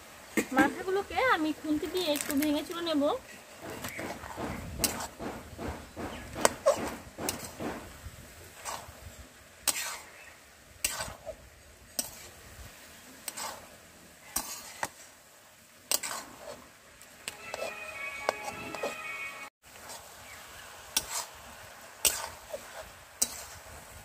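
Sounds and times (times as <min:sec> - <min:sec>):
metal spatula scraping a pan: 0:03.3 - 0:12.4, 0:13.0 - 0:15.2, 0:15.9 - 0:20.1, 0:20.9 - 0:21.4, 0:22.0 - 0:24.0.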